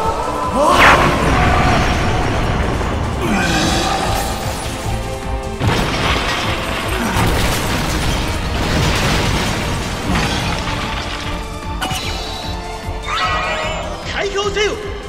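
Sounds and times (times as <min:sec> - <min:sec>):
dramatic battle music: 0:00.0 - 0:15.0
debris crashing: 0:00.6 - 0:13.0
explosions: 0:00.7 - 0:12.1
heavy impact: 0:01.0 - 0:11.8.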